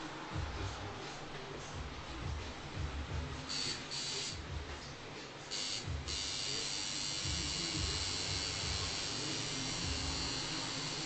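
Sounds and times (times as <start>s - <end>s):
tattoo machine buzzing: 3.5s - 4.4s, 5.5s - 11.0s.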